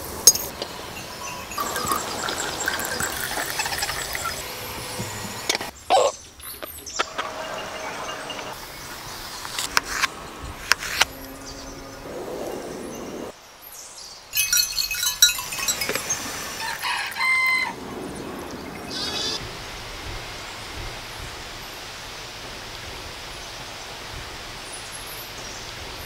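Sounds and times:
animal and bird calls: 15.6s - 19.4s.

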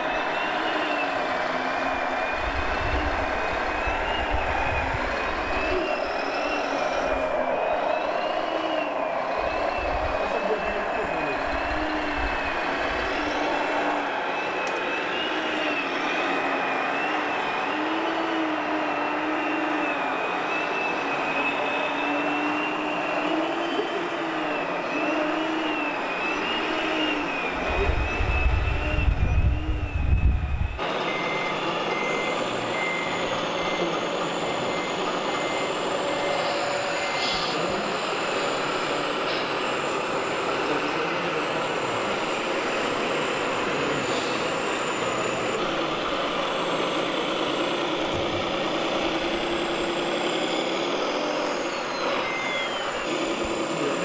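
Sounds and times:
electric motors and gearboxes whining: 0.0s - 54.0s
reversing beeper: 0.0s - 54.0s
loud low rumble: 27.6s - 30.8s.

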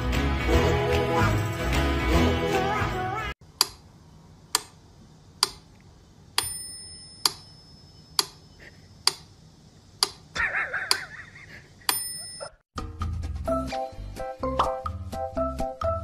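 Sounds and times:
bell-like ding: 6.4s - 8.5s, 11.9s - 12.6s
clock ticking: 10.0s - 10.3s.

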